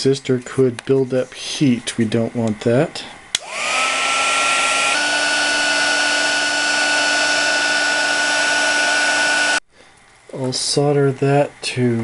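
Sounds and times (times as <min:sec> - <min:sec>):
heat gun switch click: 0:03.3 - 0:03.6
heat gun fan whine: 0:03.3 - 0:09.6.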